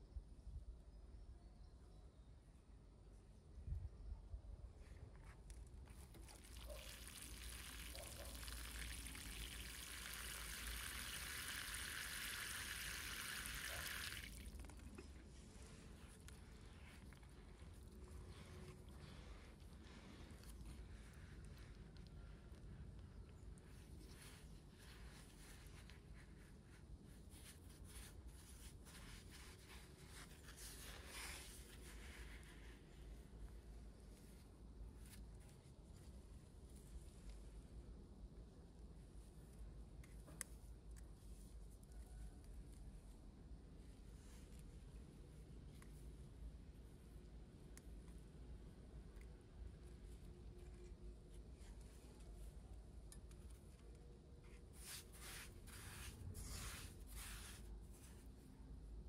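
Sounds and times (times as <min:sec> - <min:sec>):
brushing rustle: 0:05.2 - 0:21.9, 0:23.5 - 0:37.6, 0:43.7 - 0:48.3, 0:53.3 - 0:58.8
water pouring in a stream: 0:06.0 - 0:14.8
faint scratching and rubbing: 0:14.6 - 0:22.8, 0:23.4 - 0:37.5, 0:49.8 - 0:58.9.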